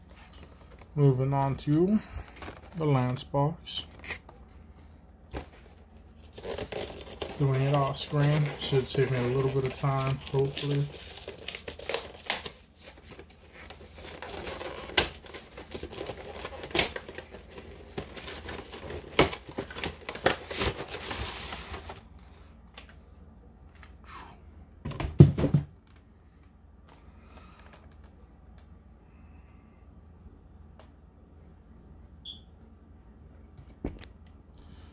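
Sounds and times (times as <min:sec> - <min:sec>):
plastic wrapping crinkling: 0:05.4 - 0:22.1.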